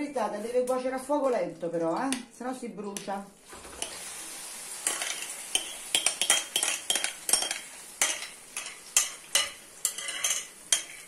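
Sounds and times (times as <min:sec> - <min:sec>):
oil sizzling: 0:03.3 - 0:11.0.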